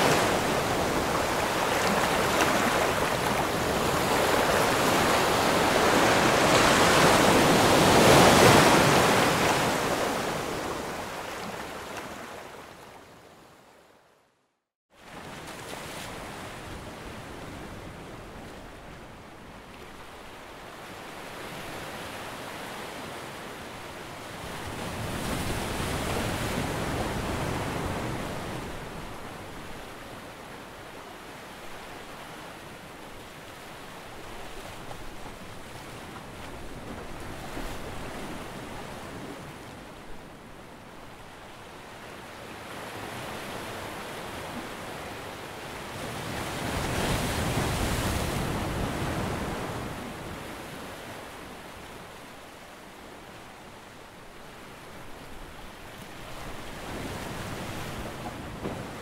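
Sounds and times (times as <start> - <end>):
ocean waves breaking: 0.0 - 12.9, 19.8 - 52.2.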